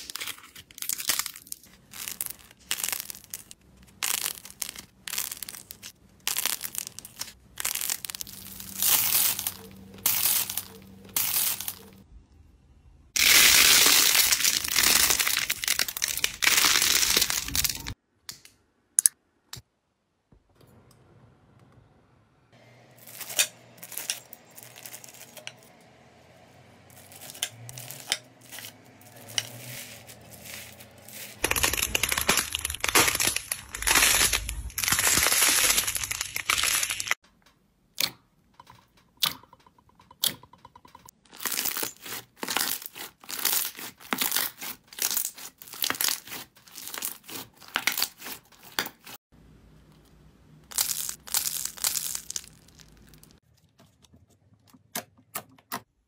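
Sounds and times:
slime crackling and popping: 0.0s - 11.9s, 13.2s - 18.0s, 27.0s - 37.2s, 41.4s - 49.1s, 50.7s - 53.4s.

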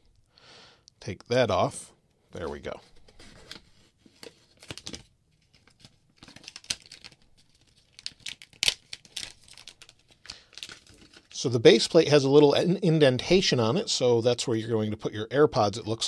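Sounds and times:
plastic film crinkling: 3.5s - 11.4s.

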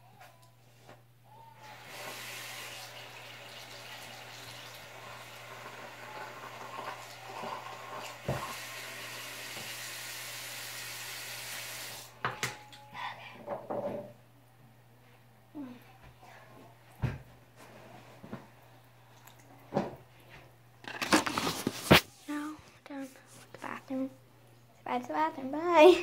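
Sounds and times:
tap running into sink: 6.7s - 8.6s, 9.4s - 9.8s.

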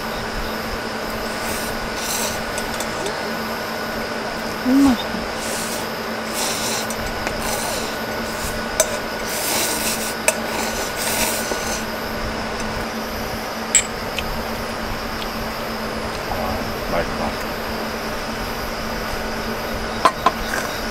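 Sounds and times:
steady hum: 0.0s - 20.9s
dishes and utensils scraping: 1.3s - 3.4s, 5.3s - 12.8s
sharp clinks: 13.8s - 14.0s.

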